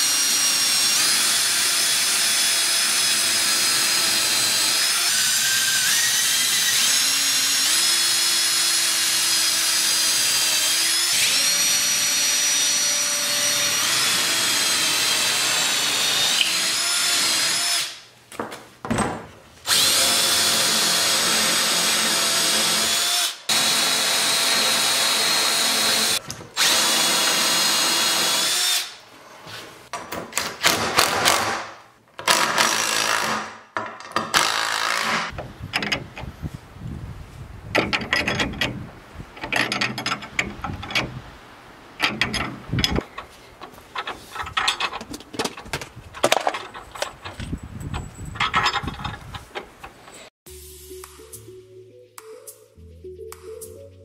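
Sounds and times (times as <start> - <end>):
cordless drill boring into wood: 19.7 - 29.0.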